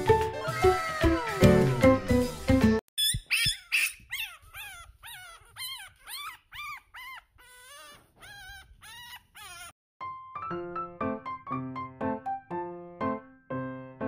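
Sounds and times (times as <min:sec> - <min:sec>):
puppy whimpering: 0:03.0 - 0:09.8.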